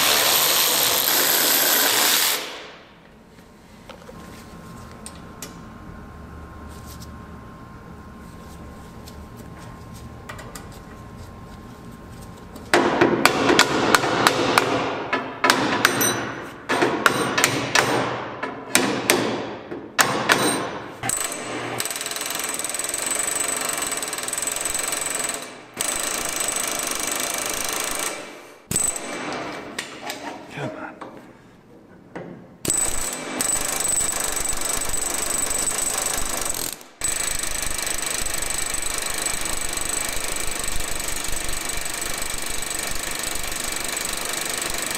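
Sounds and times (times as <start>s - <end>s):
hammer striking steel: 12.8s - 21.5s.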